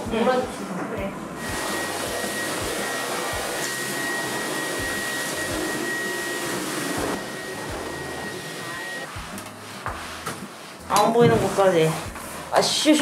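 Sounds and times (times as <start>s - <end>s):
stick vacuum cleaner running: 0.7s - 9.4s.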